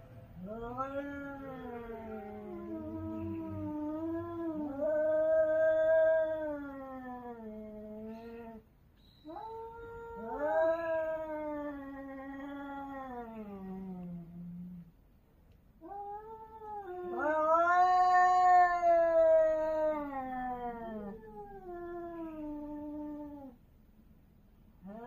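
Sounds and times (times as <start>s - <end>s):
cats caterwauling: 0.4s - 8.6s, 9.2s - 14.9s, 15.8s - 23.6s, 24.8s - 25.0s.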